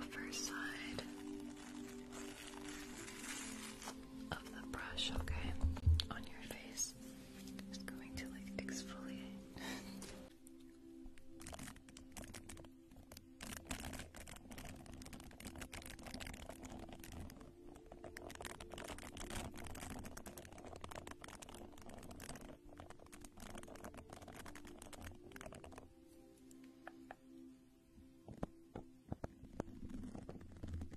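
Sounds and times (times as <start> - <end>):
pad rubbing on microphone: 0.1 - 4.1, 13.4 - 25.9, 29.1 - 30.9.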